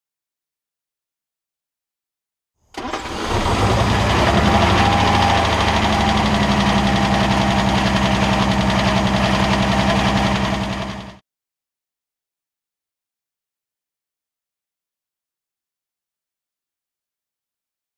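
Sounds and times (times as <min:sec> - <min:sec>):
car engine idling: 0:02.8 - 0:11.2.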